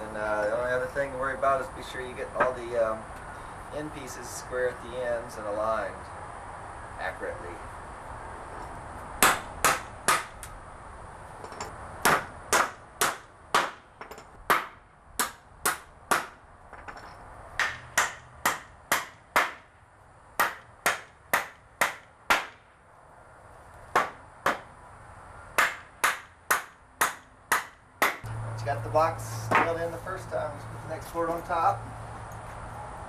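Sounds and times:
hammer driving nails into wood: 9.2 - 10.4, 12.0 - 16.9, 17.6 - 19.7, 20.4 - 22.6, 23.9 - 24.7, 25.6 - 28.2.

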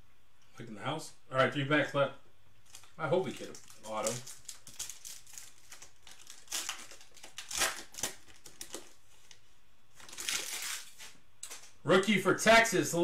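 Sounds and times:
foil wrapper crinkling: 2.6 - 11.7.

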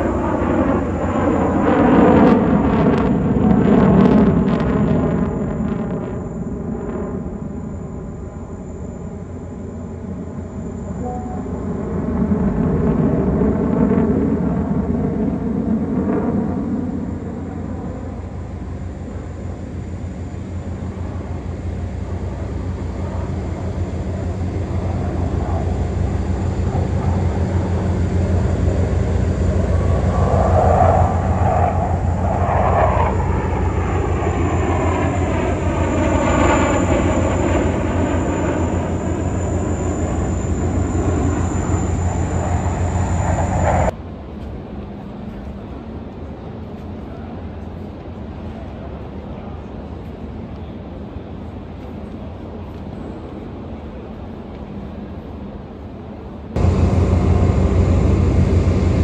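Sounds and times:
fighter jets flying overhead: 0.0 - 50.0, 56.4 - 59.0.

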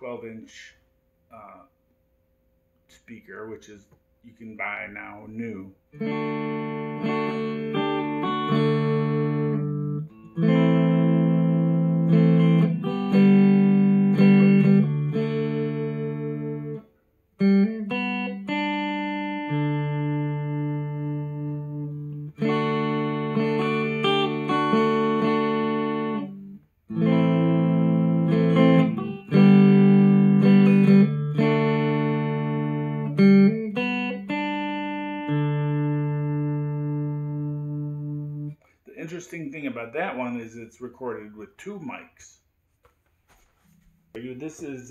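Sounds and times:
clean electric guitar chords: 5.9 - 16.8, 17.4 - 38.6.

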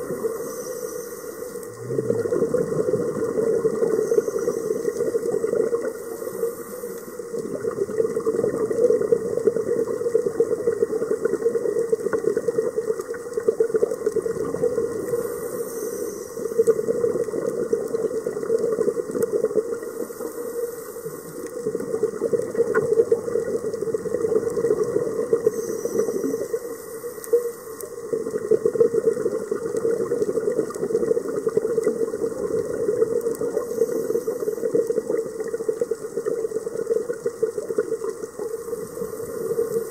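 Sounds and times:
exhaled bubbles burbling: 0.0 - 0.8, 1.4 - 39.9
regulator hiss: 0.0 - 2.0, 3.7 - 7.4, 15.0 - 16.8, 25.4 - 27.8.

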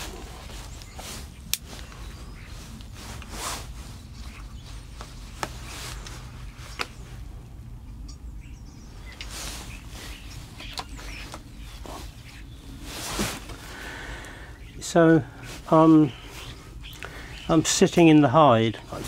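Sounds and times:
short rustles: 0.0 - 7.3, 9.2 - 13.9
faint bird calls: 0.0 - 19.0.

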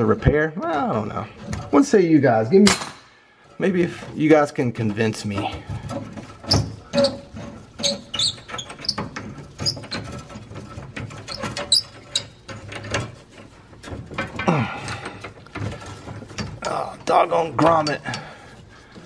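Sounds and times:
tools clicking on metal pipes: 4.0 - 19.0.

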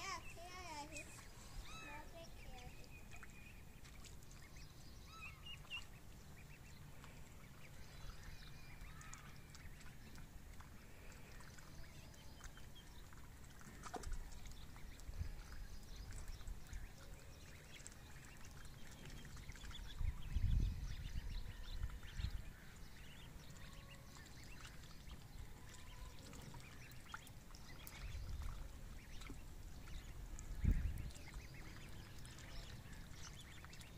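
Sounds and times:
ducklings peeping: 0.0 - 33.9
light water splashes: 0.0 - 33.9.

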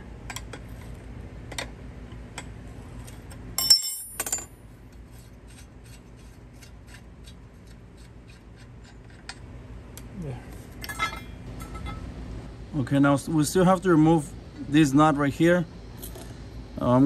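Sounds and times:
wrench clanking on concrete: 3.6 - 4.5.

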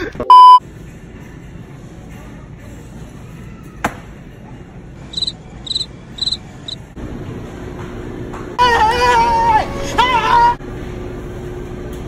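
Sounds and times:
high-pitched chirps: 5.1 - 6.8.

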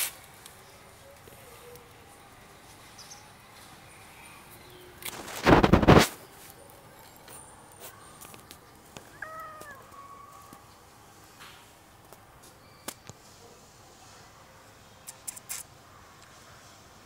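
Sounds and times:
faint background noise: 0.0 - 17.0
cat meowing: 9.1 - 10.5.

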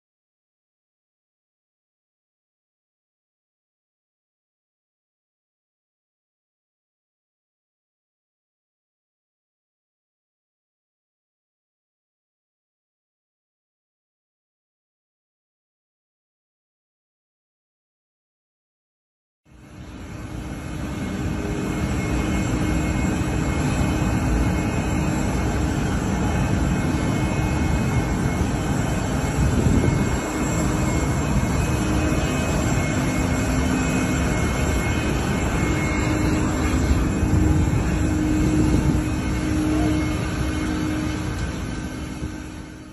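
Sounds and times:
jet engines running: 19.5 - 42.9.

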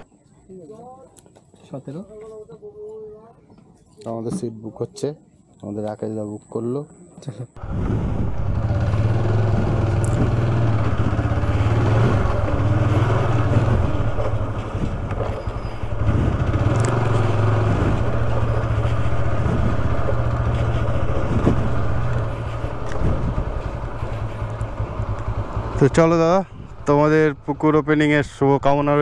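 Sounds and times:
motorcycle engine running: 7.6 - 29.0
knocks and rattles from bike: 8.2 - 25.8.

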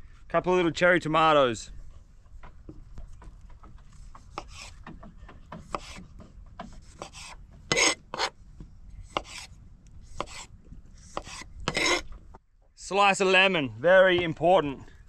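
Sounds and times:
knife cutting tomatoes on board: 4.0 - 8.4, 9.1 - 9.5, 10.1 - 12.1.

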